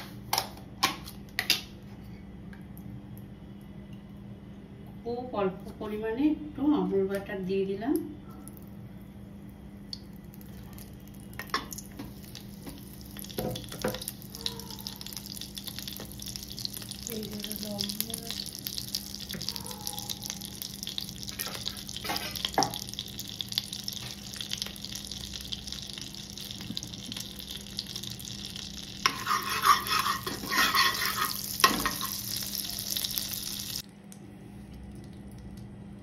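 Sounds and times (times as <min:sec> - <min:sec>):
oil and butter sizzling: 0:09.9 - 0:19.6, 0:20.2 - 0:33.9.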